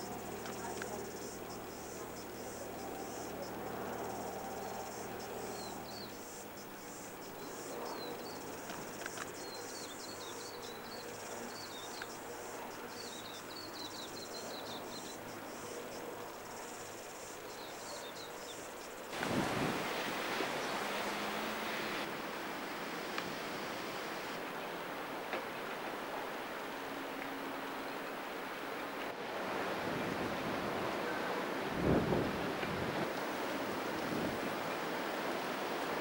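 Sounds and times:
low steady hum: 0.0 - 17.0
insects chirring: 0.0 - 24.5, 33.0 - 36.0.

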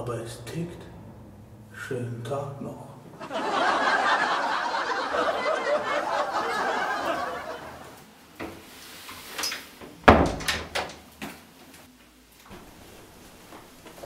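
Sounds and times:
door shutting thud: 10.0 - 11.0.

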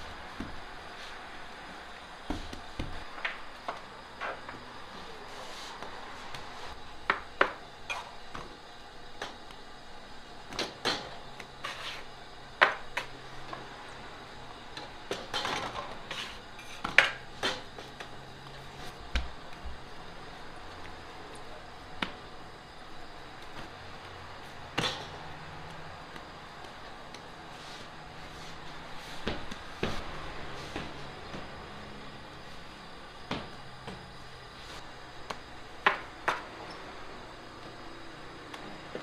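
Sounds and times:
dough landing in metal pans: 10.5 - 11.8, 14.8 - 18.1, 24.6 - 25.3.

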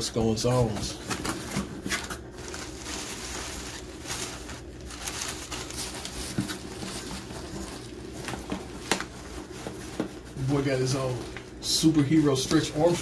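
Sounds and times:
packing paper rustling and crinkling: 0.0 - 13.0.

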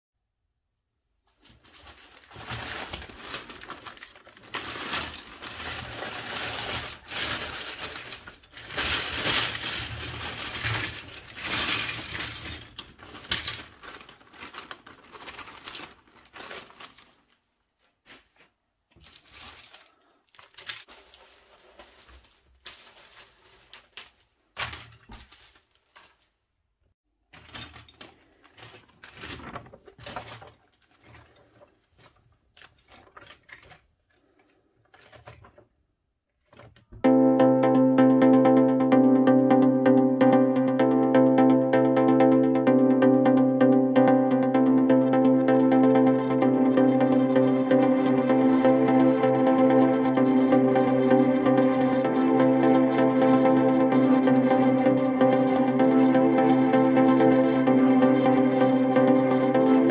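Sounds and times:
paper pages turning: 1.3 - 26.4
plastic bag crinkling: 1.3 - 26.4
plastic bricks clattering: 1.6 - 17.2, 27.3 - 35.7.

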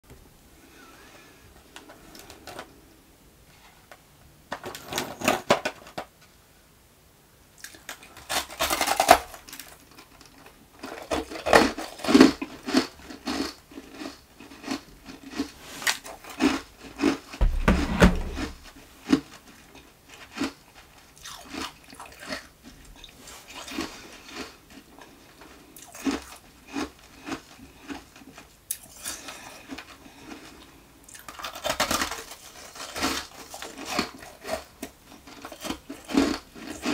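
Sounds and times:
ice being crunched and chewed: 7.6 - 17.4, 19.0 - 36.9.

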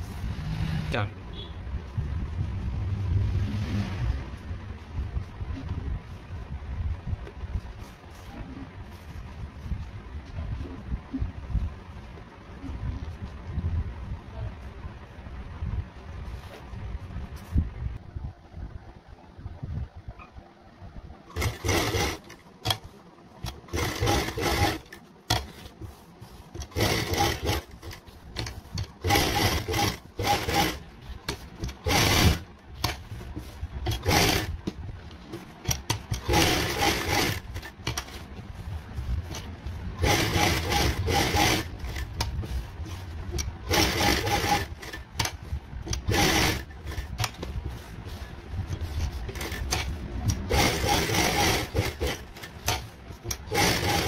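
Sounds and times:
sewing machine stitching fabric: 21.3 - 38.3, 38.9 - 54.0.

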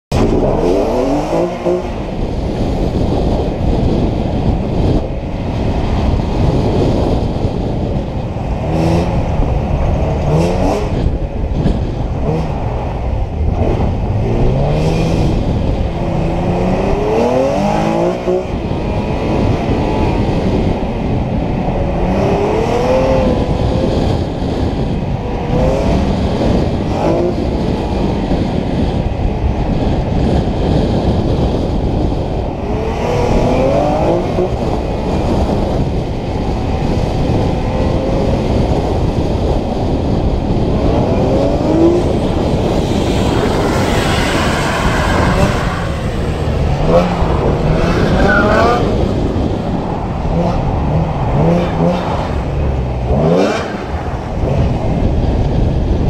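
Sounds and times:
car engine revving: 0.1 - 3.0, 6.8 - 20.3, 40.2 - 55.8
steady rushing noise: 0.1 - 56.0.

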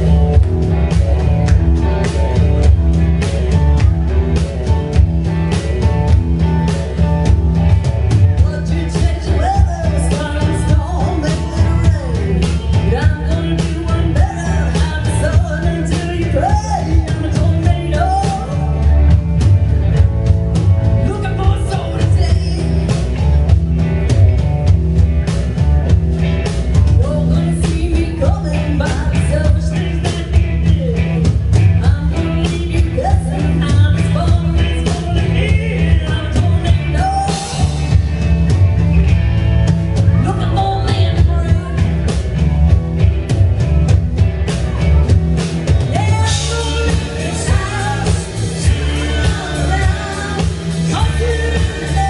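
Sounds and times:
live rock band: 0.0 - 52.0
woman singing: 8.3 - 18.9, 21.0 - 22.9, 27.0 - 37.8, 40.2 - 41.9, 45.8 - 52.0.

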